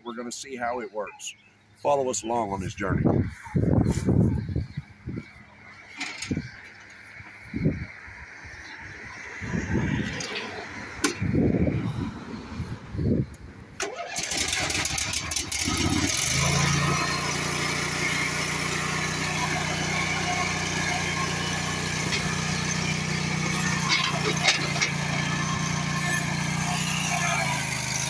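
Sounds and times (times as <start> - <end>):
mower engine starting and running: 5.9 - 7.2, 9.4 - 12.6, 13.7 - 28.0
knocks of mower on ramp: 6.0 - 6.9, 13.8 - 28.0.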